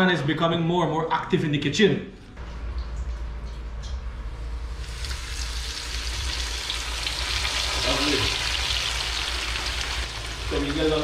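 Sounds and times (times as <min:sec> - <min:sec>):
fish sizzling in hot oil: 0:04.8 - 0:11.0.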